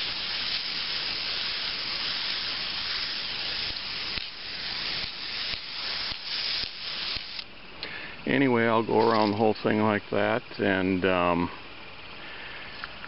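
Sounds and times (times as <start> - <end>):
spray paint can hissing: 0.0 - 7.5.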